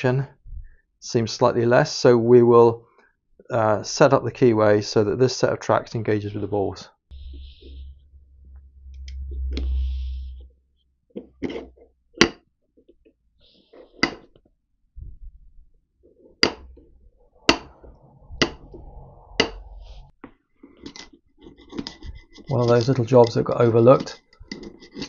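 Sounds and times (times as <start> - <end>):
low rumble of metal pressing: 16.4 - 20.1
tool scraping steel ring: 19.4 - 20.1.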